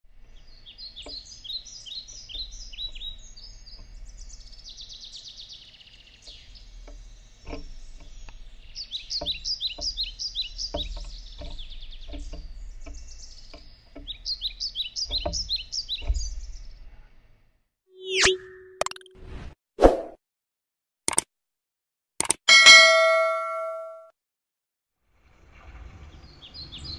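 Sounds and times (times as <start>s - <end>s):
songbirds chirping: 0.1s - 18.2s, 26.0s - 26.9s
buzzy bird trill: 0.5s - 16.6s, 18.0s - 19.1s.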